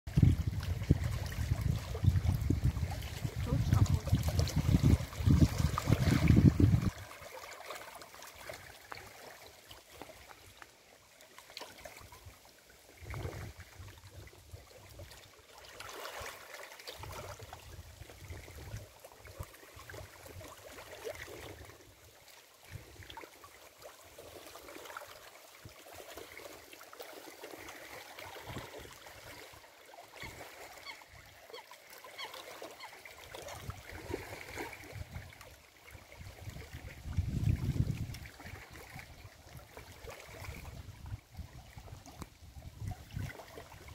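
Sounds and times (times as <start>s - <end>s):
wind buffeting microphone: 0.1s - 7.0s, 36.4s - 38.4s
small waves lapping on stones: 0.1s - 43.9s.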